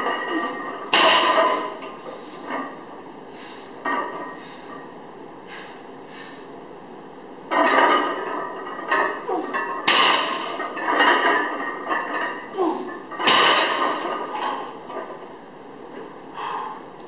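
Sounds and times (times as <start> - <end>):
barbell plates clanking: 0.0 - 2.9, 3.8 - 4.9, 7.5 - 15.4.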